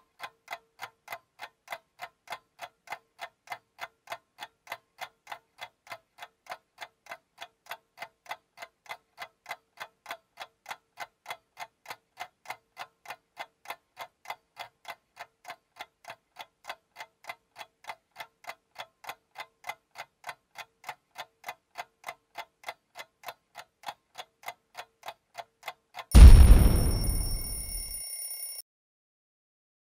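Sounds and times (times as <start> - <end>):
clock ticking: 0.0 - 28.5
explosion boom with ringing: 26.1 - 28.0.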